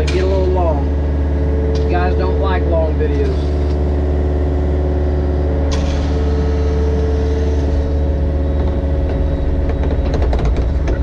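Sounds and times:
diesel engine running under load: 0:00.0 - 0:11.0.

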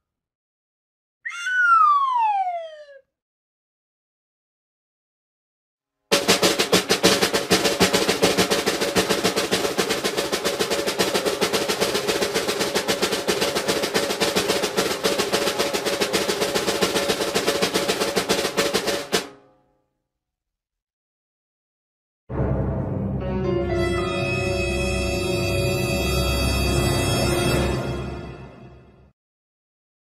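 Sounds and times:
snare drum roll: 0:06.1 - 0:19.4.

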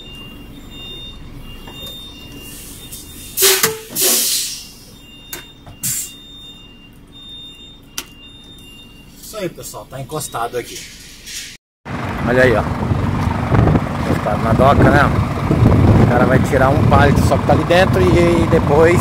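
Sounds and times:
truck engine idling: 0:00.0 - 0:09.2, 0:11.9 - 0:19.0
compressed air hiss: 0:03.4 - 0:04.8.

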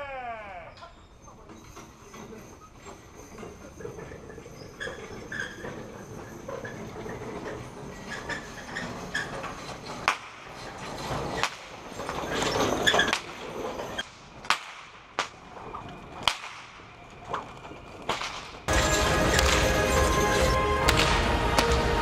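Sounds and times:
whip cracking: 0:14.4 - 0:15.4, 0:16.2 - 0:16.8.

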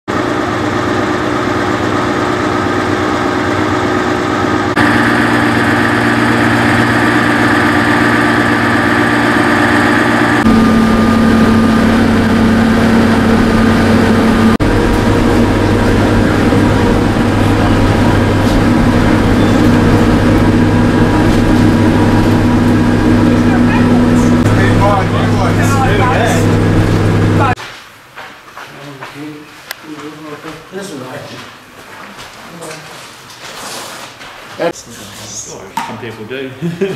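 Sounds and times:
railcar engine idling: 0:01.2 - 0:27.6.

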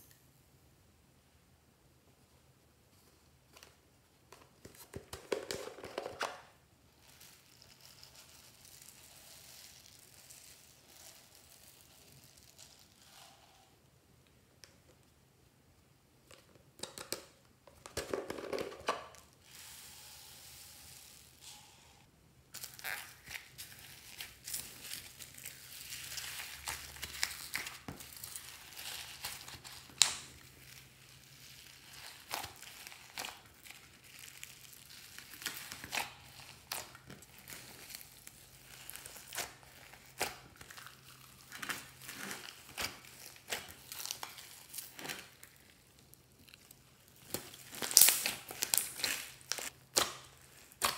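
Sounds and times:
slime being kneaded crackling: 0:22.6 - 0:50.9.

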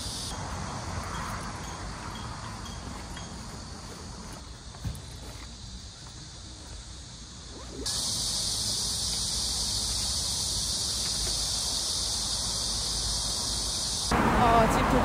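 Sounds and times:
cicadas buzzing: 0:00.0 - 0:15.0.

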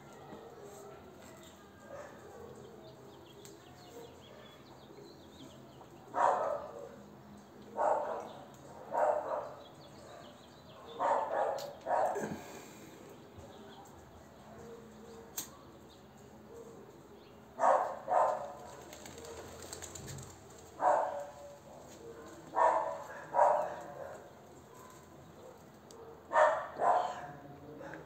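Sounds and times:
dog barking: 0:01.8 - 0:02.6, 0:06.2 - 0:07.0, 0:07.8 - 0:12.2, 0:17.6 - 0:18.6, 0:20.8 - 0:27.4.

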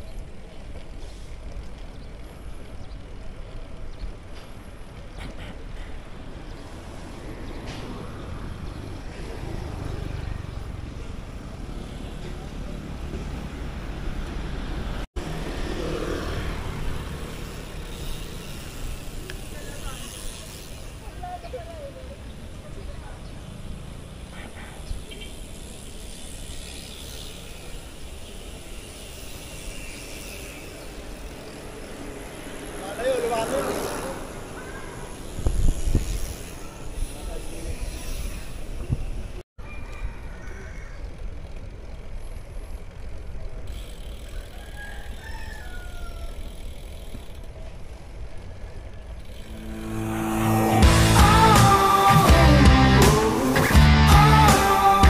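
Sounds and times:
road noise: 0:00.0 - 0:55.0
wind buffeting microphone: 0:35.3 - 0:36.5.

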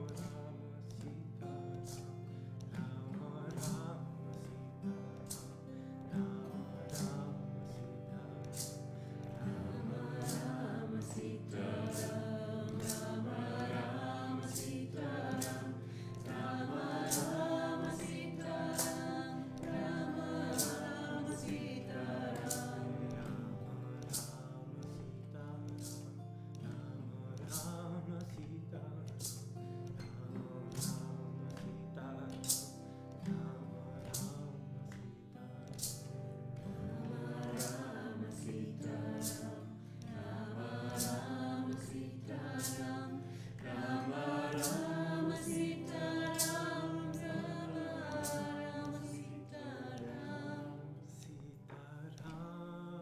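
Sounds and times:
percussion strikes: 0:08.4 - 0:24.5, 0:30.7 - 0:33.4, 0:35.7 - 0:49.3
group singing devotional chant: 0:08.6 - 0:24.4, 0:36.7 - 0:51.0.

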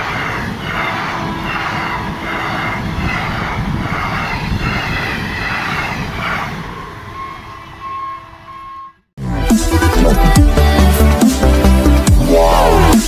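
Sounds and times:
train wheels rumbling on rail: 0:00.0 - 0:09.1.

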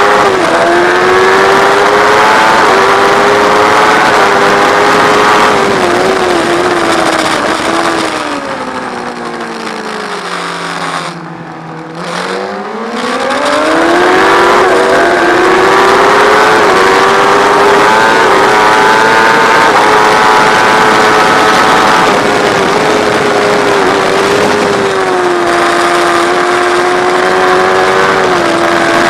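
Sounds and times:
motorcycle engine: 0:00.0 - 0:29.0
wind rush: 0:00.0 - 0:29.0.

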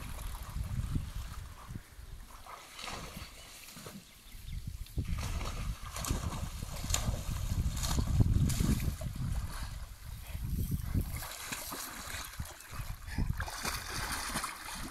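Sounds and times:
dog splashing through water: 0:02.3 - 0:04.1, 0:05.0 - 0:09.9, 0:10.8 - 0:14.9.

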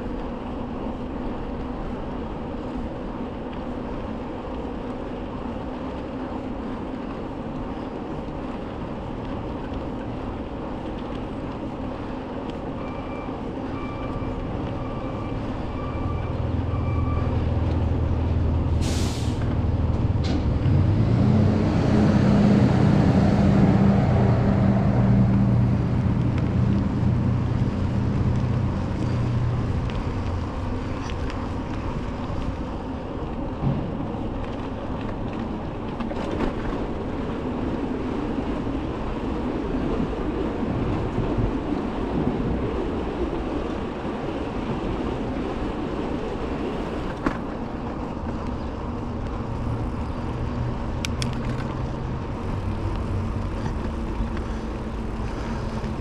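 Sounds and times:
tyres rolling on trail: 0:00.0 - 0:56.0
wind buffeting the microphone: 0:21.6 - 0:49.4.

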